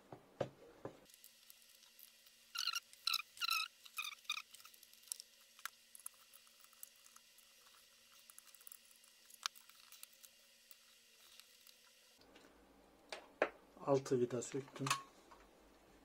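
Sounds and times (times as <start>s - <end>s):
squeaky scraping: 2.5s - 4.6s.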